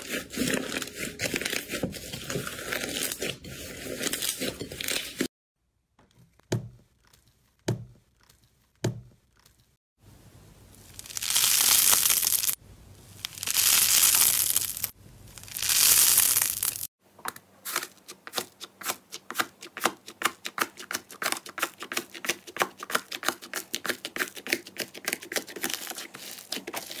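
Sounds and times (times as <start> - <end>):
slime stretching and crackling: 10.8 - 16.9
foam slime squishing and popping: 10.9 - 12.6, 13.2 - 16.9.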